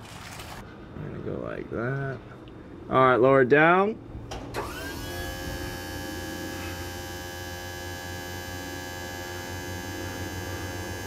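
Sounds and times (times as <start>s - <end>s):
hydraulic pump motor whining: 4.3s - 11.0s.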